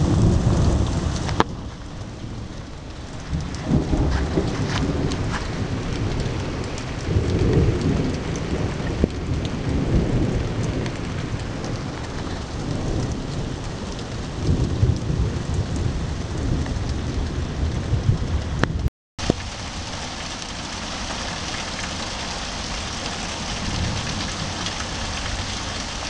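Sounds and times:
deep thunder rumbles: 0:00.0 - 0:26.0
heavy rain pouring: 0:00.0 - 0:26.0.

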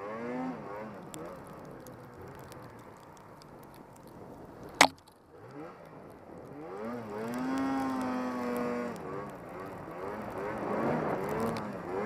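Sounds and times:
snowmobile engine revving: 0:00.0 - 0:01.4, 0:06.5 - 0:12.0.

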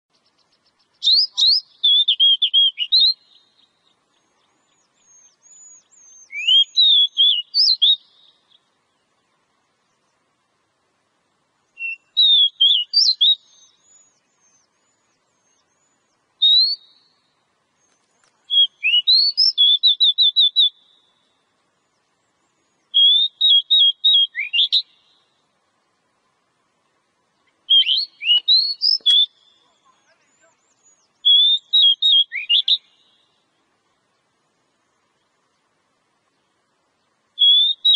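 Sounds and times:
bird singing whistled phrases: 0:01.0 - 0:03.8, 0:04.7 - 0:08.6, 0:11.8 - 0:21.2, 0:22.9 - 0:25.2, 0:27.7 - 0:33.3, 0:37.4 - 0:37.9.

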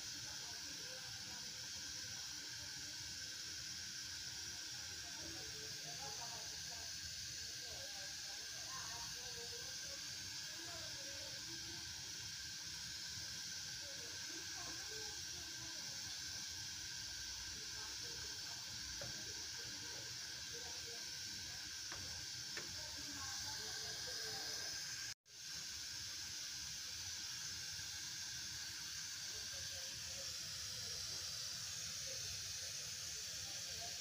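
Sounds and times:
stove hissing: 0:00.0 - 0:34.0.

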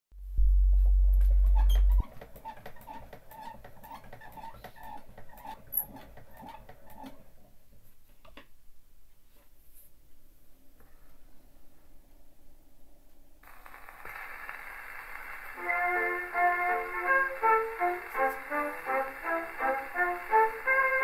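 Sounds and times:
loud low hum: 0:00.2 - 0:02.0.

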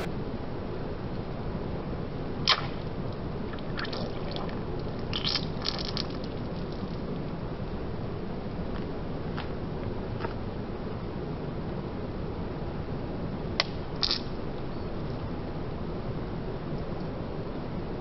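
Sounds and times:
low background hiss: 0:00.0 - 0:18.0
water squirting spurts: 0:03.5 - 0:06.4.

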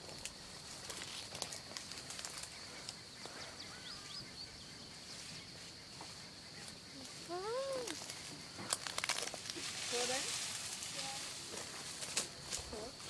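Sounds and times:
faint bird chirps: 0:02.3 - 0:08.6.

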